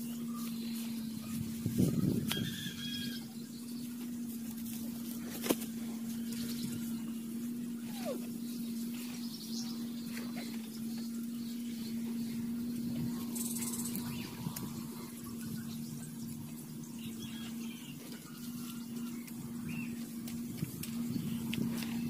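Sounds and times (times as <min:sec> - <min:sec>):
outdoor noise hiss: 0:00.0 - 0:22.0
steady low motor hum: 0:00.0 - 0:22.0.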